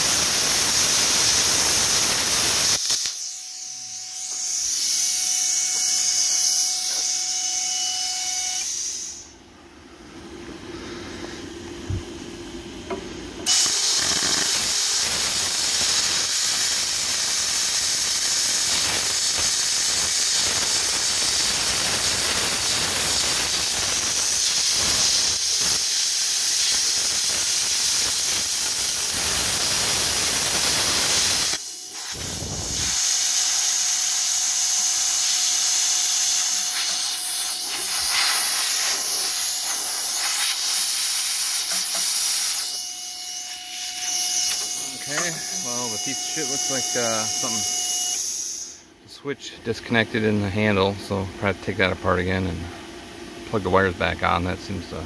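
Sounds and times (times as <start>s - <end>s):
plasma cutter arc hissing: 0.0s - 7.2s, 8.6s - 9.3s, 13.4s - 48.8s.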